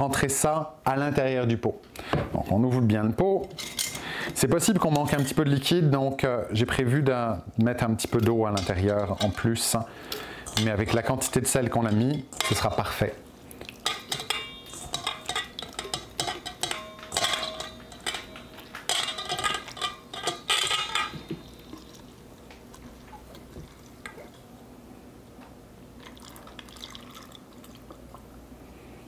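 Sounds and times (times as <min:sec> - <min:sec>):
metal bowl and glass jar clinking: 0:08.0 - 0:09.8, 0:10.4 - 0:22.1
liquid pouring: 0:21.1 - 0:24.5, 0:26.0 - 0:28.2.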